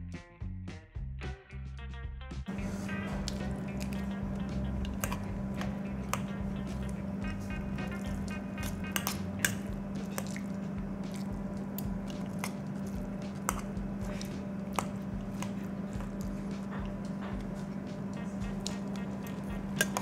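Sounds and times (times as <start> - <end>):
steady low hum: 2.5 - 20.0
wet chewing: 2.6 - 20.0
fork clinking against ceramic bowl: 3.2 - 11.3, 13.4 - 16.2, 18.5 - 20.0.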